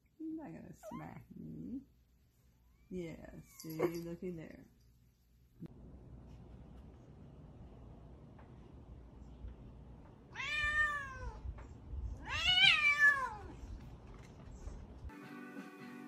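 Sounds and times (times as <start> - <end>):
cat meowing: 10.3 - 11.4, 12.2 - 13.5.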